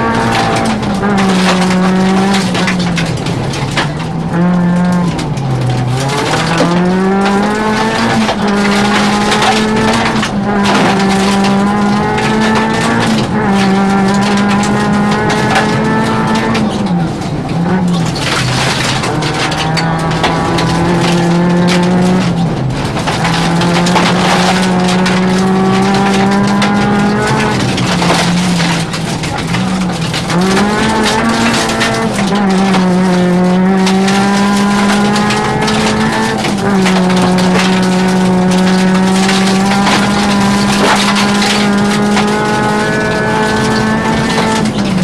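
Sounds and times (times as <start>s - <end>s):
rally car engine at high revs: 0.0s - 45.0s
stones ticking against car: 0.0s - 45.0s
tyres on gravel: 0.0s - 45.0s.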